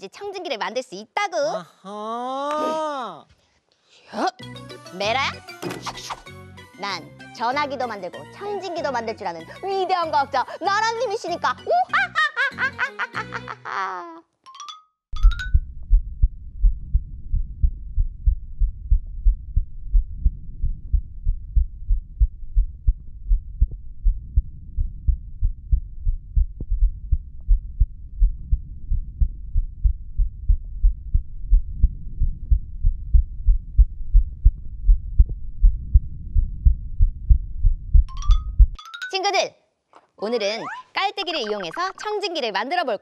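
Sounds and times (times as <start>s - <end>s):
heartbeat through stethoscope: 15.5s - 38.8s.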